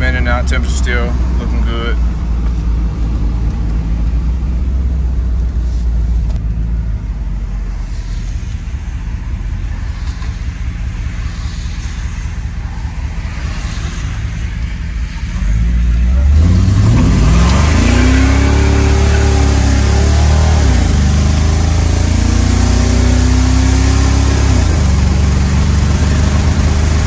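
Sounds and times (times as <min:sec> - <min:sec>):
car engine drone: 0:00.0 - 0:27.0
road and tyre noise: 0:00.0 - 0:27.0.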